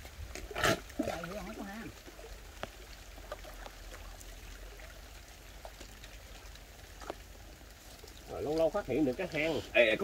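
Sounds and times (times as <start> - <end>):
faint drips: 0.0 - 10.0
water trickling and splashing: 0.0 - 10.0.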